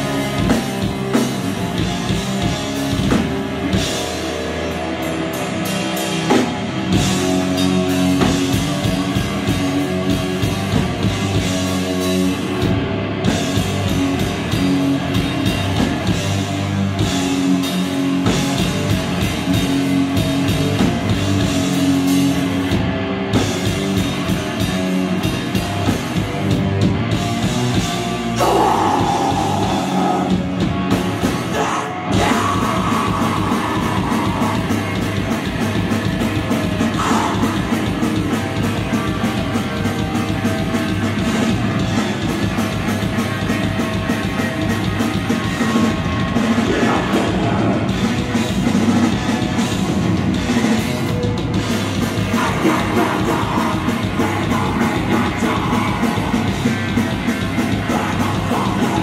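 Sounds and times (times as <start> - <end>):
distorted electric guitars: 0.0 - 59.0
fast dense drumming: 0.0 - 59.0
vocalist shouting: 28.4 - 30.4.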